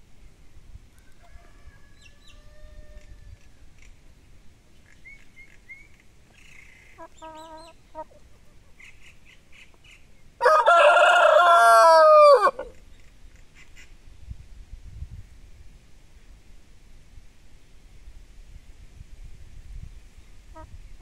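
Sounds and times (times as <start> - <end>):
rooster crowing: 1.0 - 3.5, 10.4 - 12.8.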